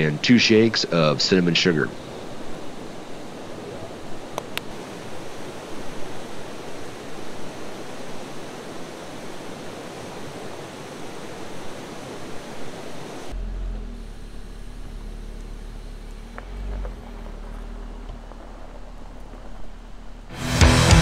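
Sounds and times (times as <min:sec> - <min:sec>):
river rapids rushing: 0:00.0 - 0:13.4
vehicle engine idling: 0:13.3 - 0:20.8.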